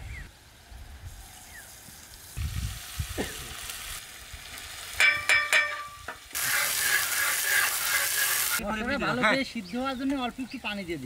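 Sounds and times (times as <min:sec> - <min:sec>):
metal spatula clanking on griddle: 0:05.0 - 0:08.4
loud sizzling: 0:06.0 - 0:08.6
paste frying in oil: 0:06.2 - 0:08.6.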